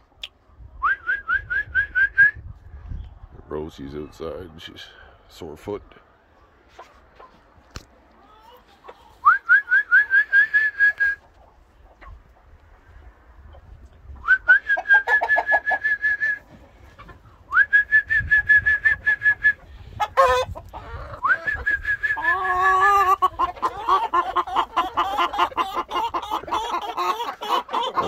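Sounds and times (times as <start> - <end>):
chickens clucking and squawking: 0.0 - 0.8, 2.4 - 28.0
person whistling long notes: 0.8 - 2.4, 9.2 - 11.2, 14.2 - 16.4, 17.5 - 19.6, 21.2 - 22.3.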